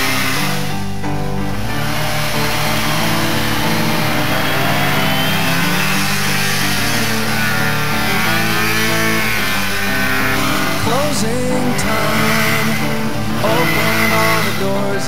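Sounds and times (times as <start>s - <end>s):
rock song: 0.0s - 15.0s
snowmobile engine revving: 0.0s - 15.0s.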